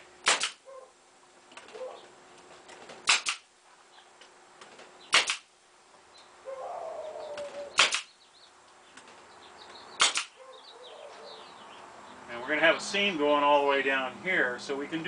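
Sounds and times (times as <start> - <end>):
nail gun firing: 0.2 - 0.6, 3.0 - 3.5, 5.1 - 5.5, 7.7 - 8.1, 10.0 - 10.4.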